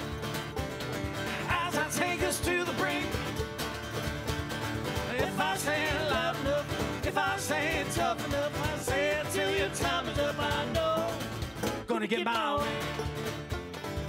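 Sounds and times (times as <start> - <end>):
acoustic band playing live: 0.0 - 14.0
banjo: 0.0 - 14.0
person singing: 1.3 - 3.3, 5.1 - 11.3.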